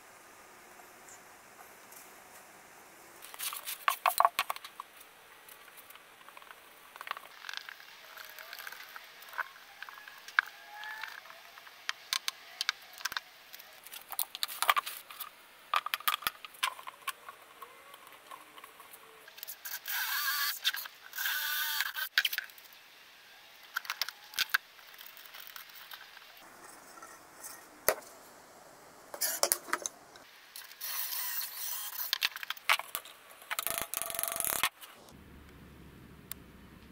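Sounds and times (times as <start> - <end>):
tools and plywood clicking: 32.0 - 34.8.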